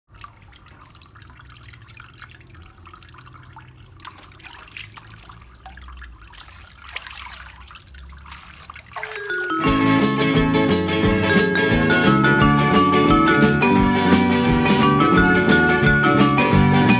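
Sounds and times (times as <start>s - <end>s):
water running in a steel sink: 0.1s - 9.8s
hands swishing leafy greens: 4.0s - 9.7s.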